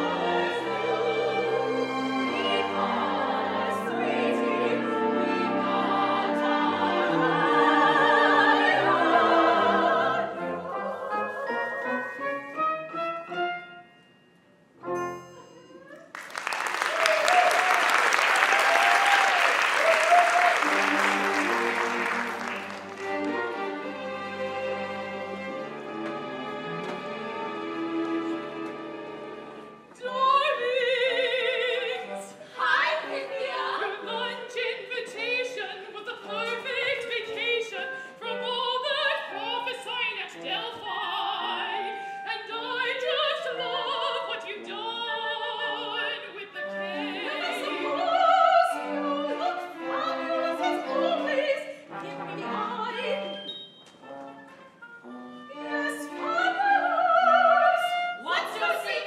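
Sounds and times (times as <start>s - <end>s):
opera singer singing with vibrato: 0.0s - 12.2s, 30.0s - 53.6s, 55.6s - 59.0s
instrumental accompaniment: 20.1s - 30.8s, 46.0s - 59.0s.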